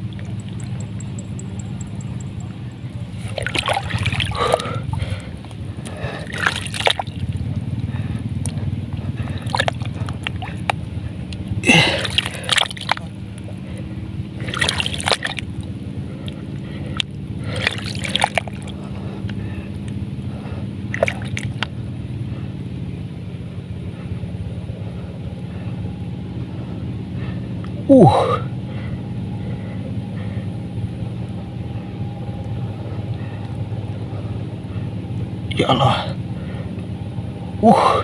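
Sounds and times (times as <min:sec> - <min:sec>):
muddy water sloshing and splashing: 0:00.0 - 0:22.4
steady low hum: 0:00.0 - 0:38.0.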